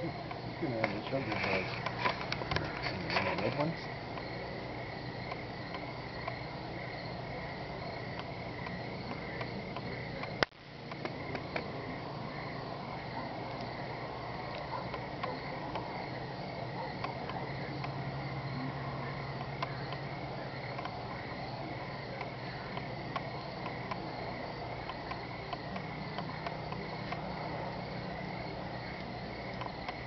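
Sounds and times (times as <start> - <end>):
low background hum: 0.0 - 30.0
small clicks and ticks: 0.2 - 4.3, 5.2 - 6.4, 8.0 - 11.7, 19.3 - 21.0, 22.1 - 27.4, 28.9 - 30.0.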